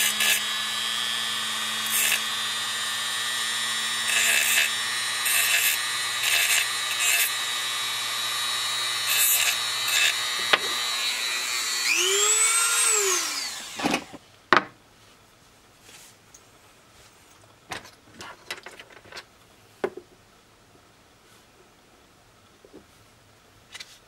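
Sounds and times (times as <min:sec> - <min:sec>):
bit grinding metal: 0:00.0 - 0:14.1
rotary tool whining: 0:00.0 - 0:14.2.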